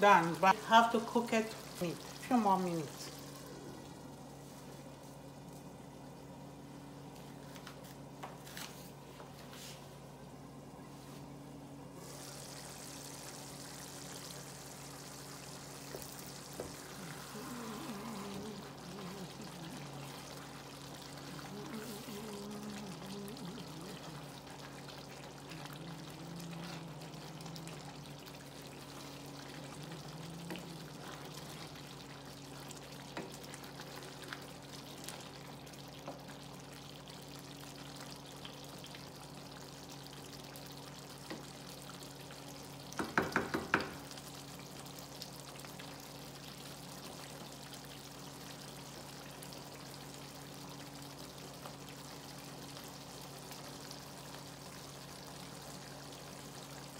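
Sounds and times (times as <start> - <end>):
steady low hum: 0.0 - 40.3
pot simmering and bubbling: 0.0 - 56.9
wooden spoon knocking pot: 43.0 - 44.1.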